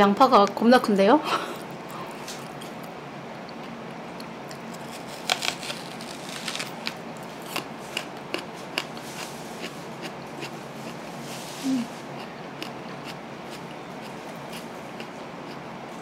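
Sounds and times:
faint steady hum: 0.0 - 16.0
onion crunching when bitten: 4.5 - 9.0.

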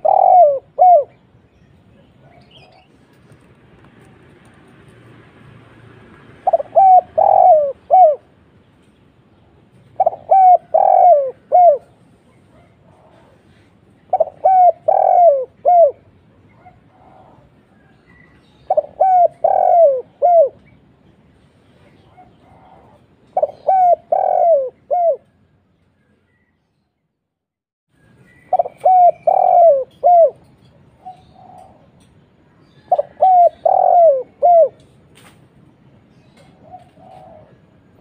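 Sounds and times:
dove cooing: 0.0 - 1.2, 6.4 - 8.4, 9.9 - 20.7, 21.9 - 25.4, 28.5 - 32.0, 32.7 - 34.9, 36.4 - 38.0.

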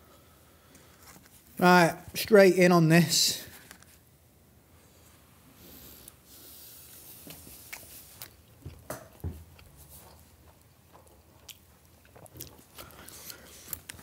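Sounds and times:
person chewing food: 5.9 - 14.0.

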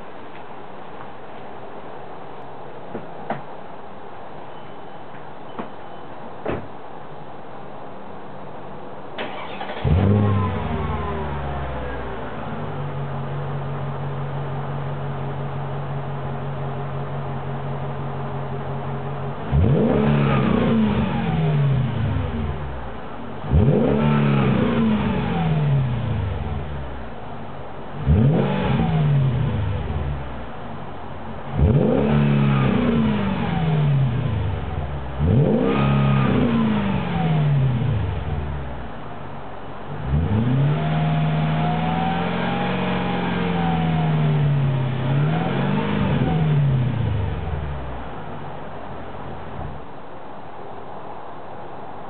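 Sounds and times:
car engine revving: 9.2 - 49.8.

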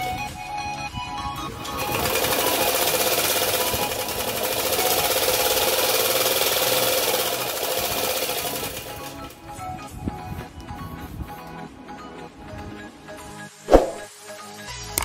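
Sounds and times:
band saw rattling through foam: 1.8 - 9.3.

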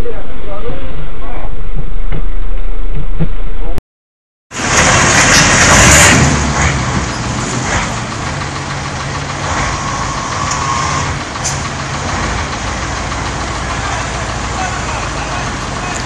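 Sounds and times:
road noise: 4.5 - 16.0
vehicle engine running: 4.5 - 16.0.

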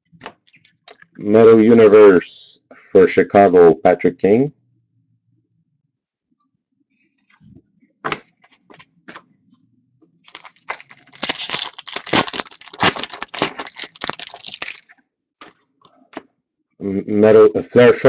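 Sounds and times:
foil pack crinkling and tearing: 10.3 - 15.0.

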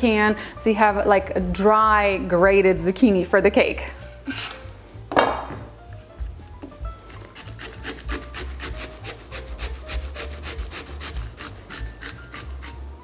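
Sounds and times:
vegetable grating on metal grater: 6.9 - 13.0.

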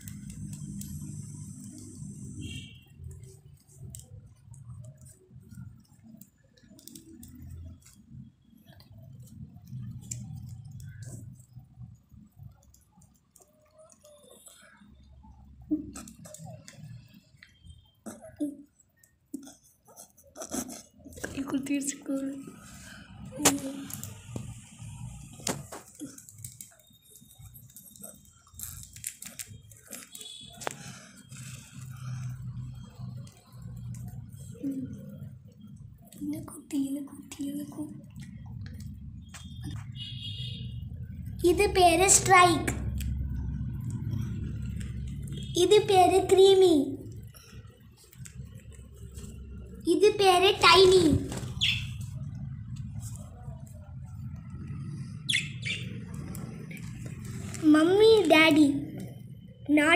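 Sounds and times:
budgerigar chirps: 51.6 - 52.0, 55.3 - 55.9.

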